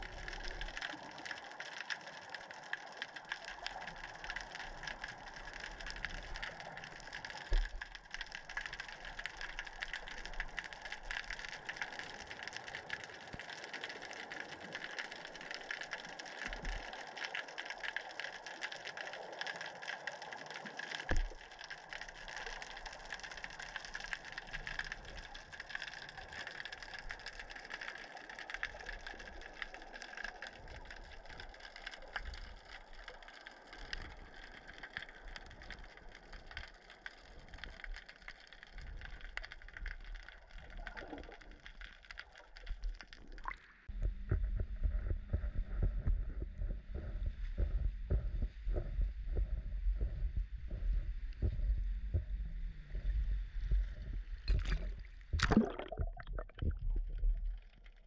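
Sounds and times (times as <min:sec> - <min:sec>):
fine crackling and ticking: 0:00.0 - 0:58.0
underwater water noise: 0:00.0 - 0:58.0.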